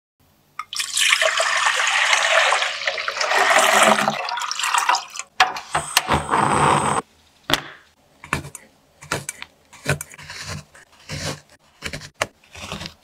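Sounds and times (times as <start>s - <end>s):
milk pouring into glass pot: 0.6s - 5.3s.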